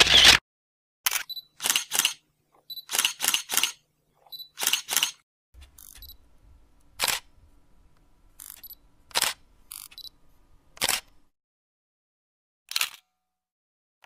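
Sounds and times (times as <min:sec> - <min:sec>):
camera shutter clicks: 0:00.0 - 0:00.4, 0:01.1 - 0:02.2, 0:02.8 - 0:03.8, 0:04.6 - 0:05.2, 0:07.0 - 0:07.2, 0:08.4 - 0:10.0, 0:10.8 - 0:11.1, 0:12.7 - 0:13.0.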